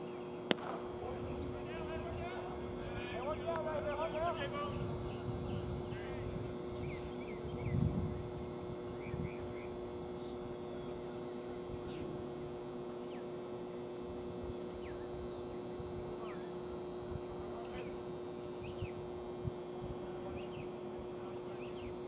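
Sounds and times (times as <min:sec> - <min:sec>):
electrical hum: 0:00.0 - 0:22.0
small birds chirping: 0:06.7 - 0:07.9, 0:08.9 - 0:11.0, 0:11.8 - 0:13.4, 0:14.4 - 0:16.6, 0:18.6 - 0:19.1, 0:20.3 - 0:20.8, 0:21.5 - 0:22.0.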